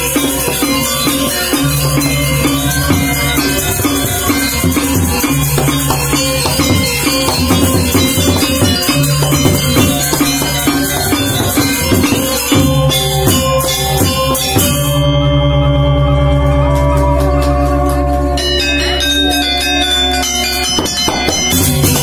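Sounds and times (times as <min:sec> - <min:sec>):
hand drums: 0:00.0 - 0:15.1, 0:20.4 - 0:22.0
gamelan ensemble playing: 0:00.0 - 0:22.0.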